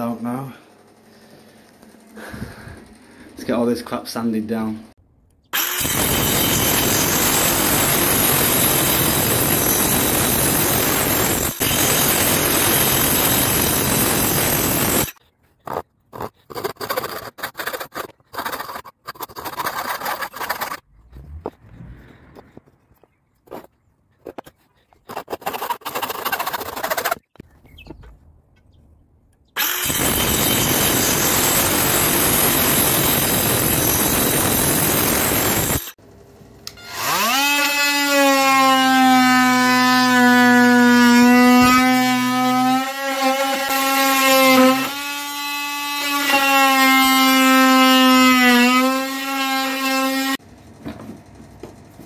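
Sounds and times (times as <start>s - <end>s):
oscillating multi-tool cutting wood: 5.6s - 21.8s, 22.4s - 27.4s, 29.6s - 36.0s, 36.6s - 50.4s.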